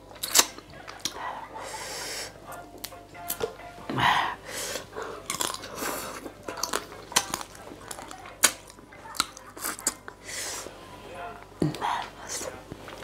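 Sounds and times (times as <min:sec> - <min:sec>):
person chewing and slurping noodles: 0:04.6 - 0:10.7.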